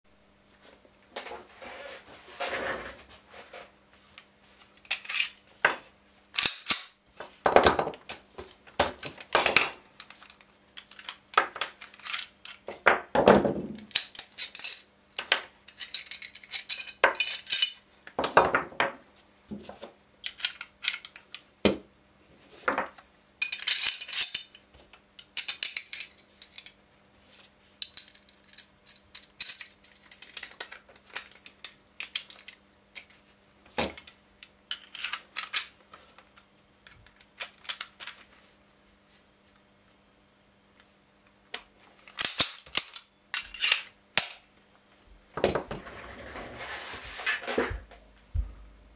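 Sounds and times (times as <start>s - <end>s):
metal parts scraping: 4.9s - 5.4s, 11.8s - 12.6s, 15.7s - 17.8s, 23.4s - 24.6s, 34.7s - 35.7s, 42.0s - 44.3s.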